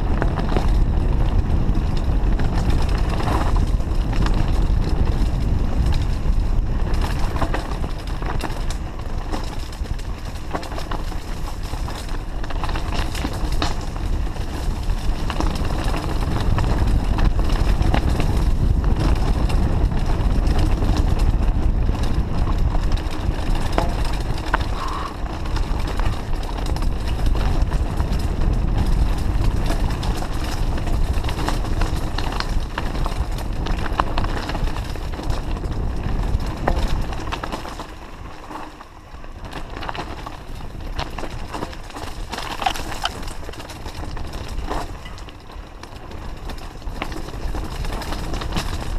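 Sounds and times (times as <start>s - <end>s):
bike rattling and clattering: 0.0s - 48.9s
wind rush on microphone: 0.0s - 48.9s
tyres crunching over stones: 20.2s - 48.9s.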